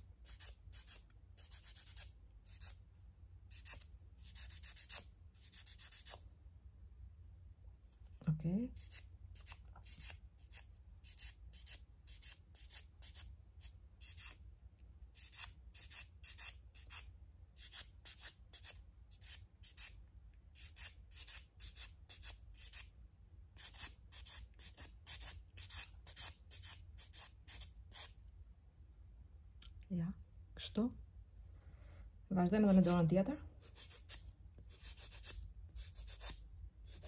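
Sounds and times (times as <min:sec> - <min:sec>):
nail buffer rasping on fingernails: 0:00.2 - 0:02.8, 0:33.6 - 0:37.0.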